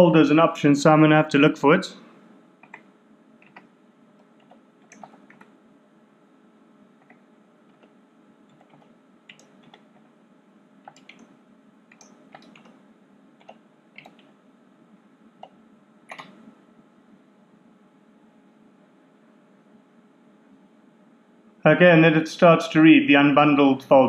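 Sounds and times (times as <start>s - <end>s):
computer keyboard key clicks: 16.1s - 16.4s.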